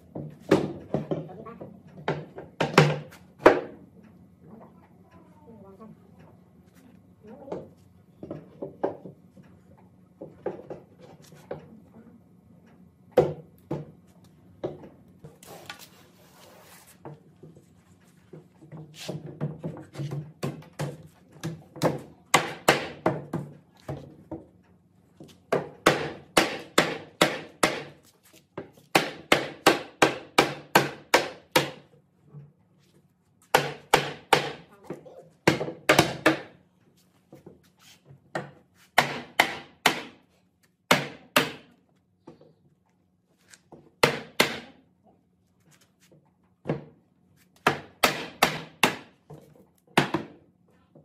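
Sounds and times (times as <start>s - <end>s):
hammering on wood: 0.1s - 1.3s, 2.0s - 3.8s, 18.8s - 24.5s, 25.5s - 28.0s, 28.6s - 31.9s, 33.5s - 34.7s, 35.4s - 36.6s, 38.3s - 40.3s, 40.9s - 41.8s, 43.8s - 44.8s, 47.6s - 50.4s.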